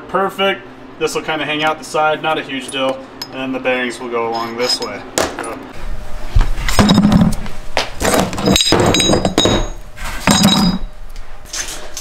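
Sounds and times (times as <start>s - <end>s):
metal parts clanking together: 8.1s - 10.8s.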